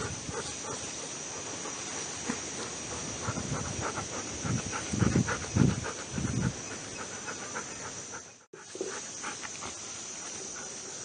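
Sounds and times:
dog panting: 0:00.0 - 0:11.0.

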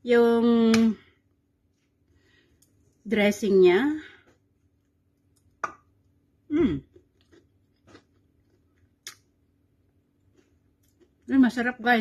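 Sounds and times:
person humming: 0:06.5 - 0:06.8.

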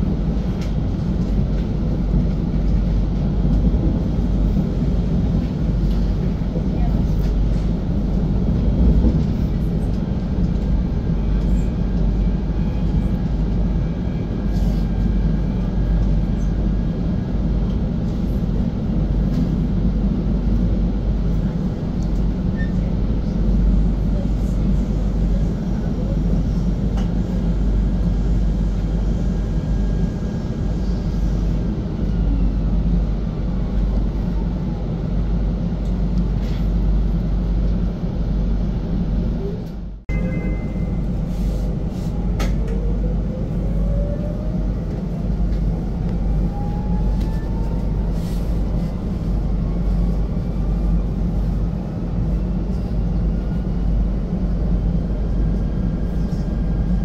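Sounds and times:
train wheels rumbling: 0:00.0 - 0:39.6.

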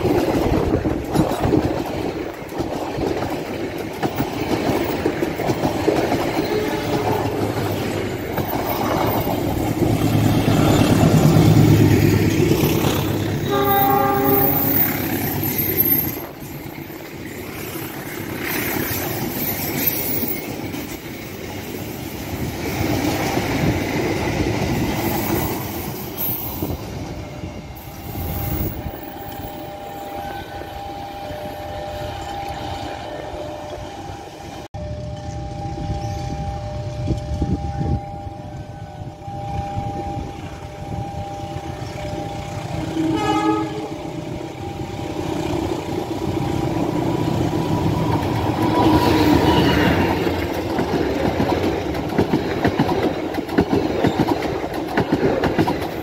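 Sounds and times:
train wheels clattering: 0:00.0 - 0:27.0, 0:45.7 - 0:56.0
electric train passing: 0:00.0 - 0:56.0
train horn: 0:13.4 - 0:15.1, 0:29.1 - 0:45.3, 0:48.8 - 0:50.4.

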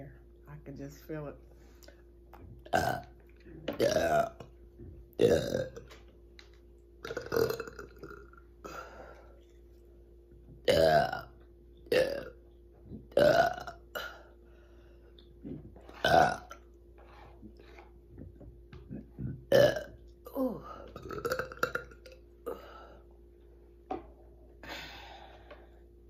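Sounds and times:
woman burping: 0:02.6 - 0:03.1, 0:03.7 - 0:04.5, 0:05.2 - 0:05.8, 0:07.0 - 0:08.9, 0:10.7 - 0:11.3, 0:11.9 - 0:12.4, 0:13.1 - 0:14.3, 0:15.5 - 0:16.6, 0:18.8 - 0:22.8.

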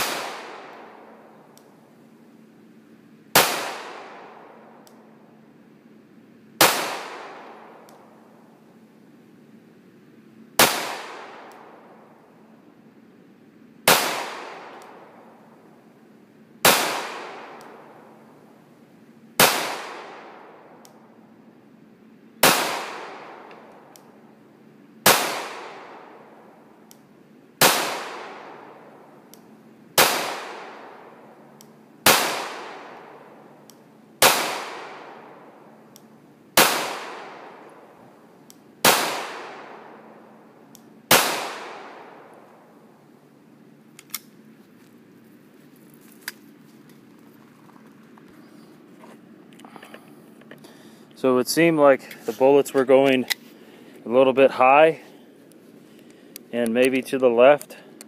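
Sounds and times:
pistol shots with echo: 0:00.0 - 0:01.2, 0:03.4 - 0:04.7, 0:06.6 - 0:07.9, 0:10.6 - 0:12.0, 0:13.9 - 0:15.2, 0:16.6 - 0:18.0, 0:19.4 - 0:20.8, 0:22.4 - 0:23.8, 0:25.0 - 0:26.4, 0:27.6 - 0:29.1, 0:30.0 - 0:31.4, 0:32.0 - 0:33.4, 0:34.2 - 0:35.7, 0:36.6 - 0:38.0, 0:38.8 - 0:40.3, 0:41.1 - 0:42.4.

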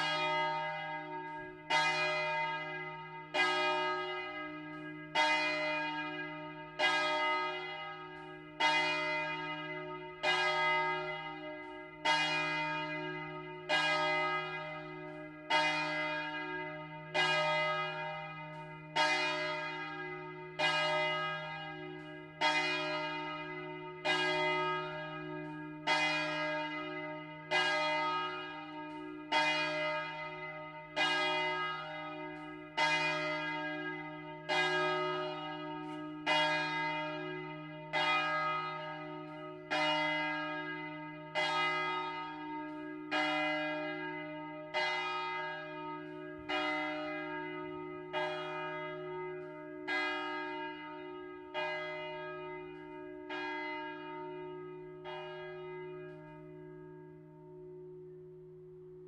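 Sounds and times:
large church bell ringing: 0:00.0 - 0:59.0.

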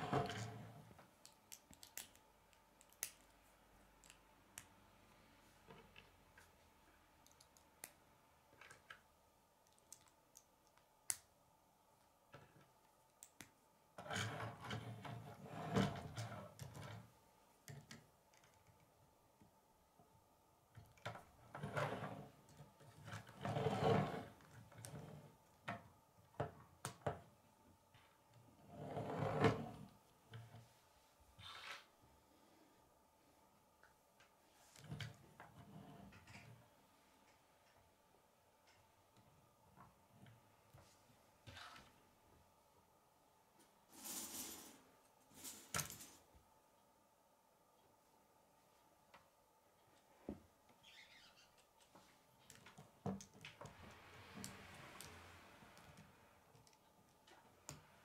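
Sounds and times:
plastic pieces snapping together: 0:01.2 - 0:03.3.

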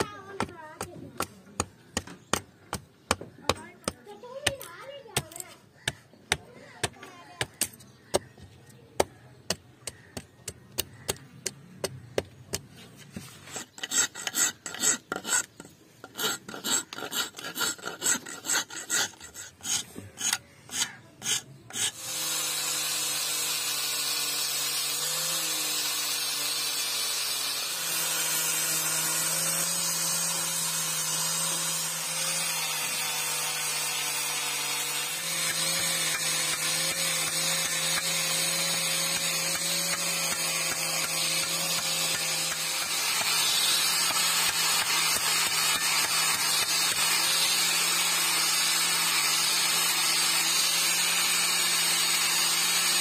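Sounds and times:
hand tool rasping wood: 0:00.0 - 0:53.0
angle grinder sanding wood: 0:12.7 - 0:53.0.

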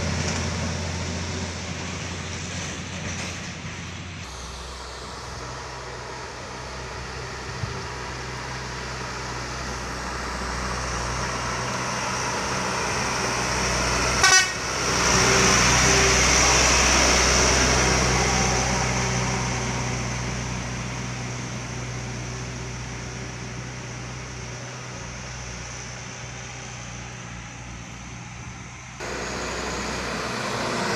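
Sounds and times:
truck engine passing: 0:00.0 - 0:30.9
short horn toot: 0:14.2 - 0:14.6.

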